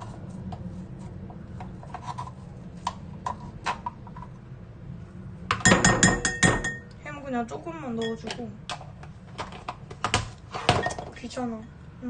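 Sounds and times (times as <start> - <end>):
wooden utensil scraping tin: 1.7 - 4.3.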